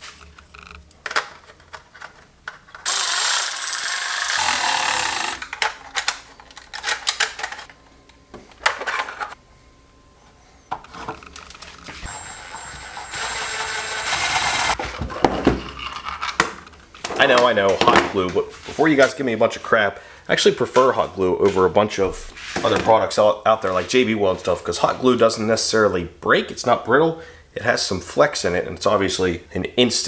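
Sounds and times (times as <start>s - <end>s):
plastic parts clicking and rattling: 0.2s - 7.8s
cordless drill driving screws: 2.8s - 5.4s, 12.0s - 14.8s.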